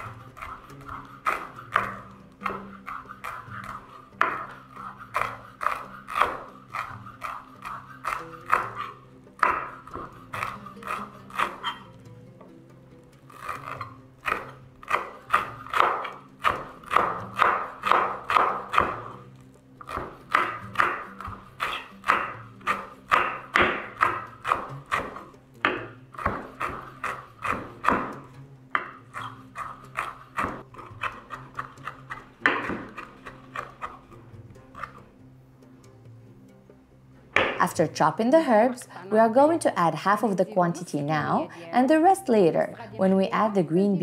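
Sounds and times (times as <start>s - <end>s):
knife chopping on wooden board: 0.0s - 11.9s, 13.4s - 19.2s, 19.8s - 35.0s, 37.4s - 37.7s.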